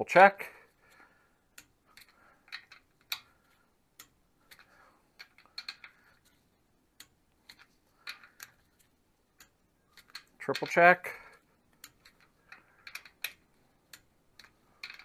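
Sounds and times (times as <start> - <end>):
socket rattling: 4.5 - 6.3, 11.9 - 13.5, 14.4 - 15.0.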